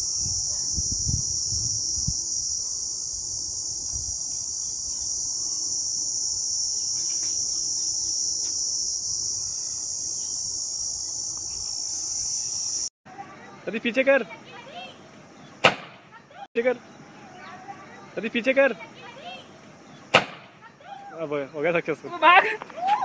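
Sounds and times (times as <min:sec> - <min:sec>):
insects chirring: 0:00.0 - 0:13.6.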